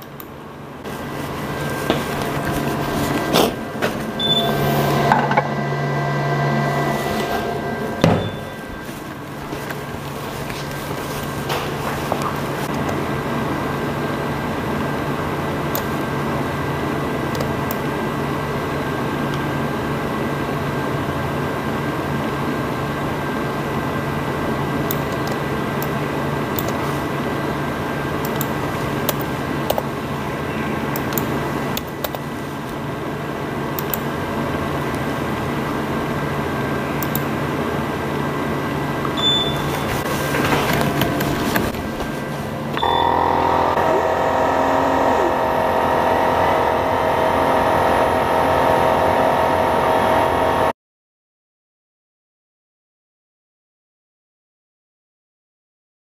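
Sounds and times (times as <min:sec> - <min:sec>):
fans whirring: 0:00.0 - 0:50.7
laser engraver droning: 0:01.4 - 0:10.1, 0:42.8 - 0:50.7.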